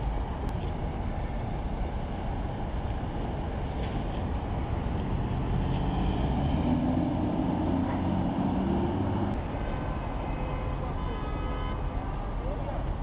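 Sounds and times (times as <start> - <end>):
engine hum: 0.0 - 9.5
low rumble of traffic: 0.0 - 13.0.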